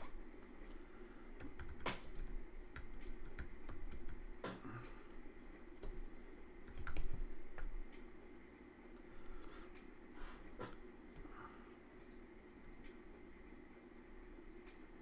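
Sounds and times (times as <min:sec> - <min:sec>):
typing on computer keyboard: 0:01.4 - 0:04.6, 0:05.7 - 0:07.4.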